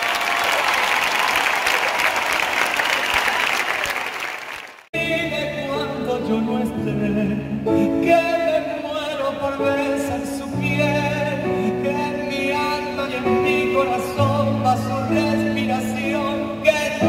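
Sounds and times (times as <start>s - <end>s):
crowd applauding and cheering: 0.0s - 4.9s
man singing a slow ballad: 5.0s - 17.0s.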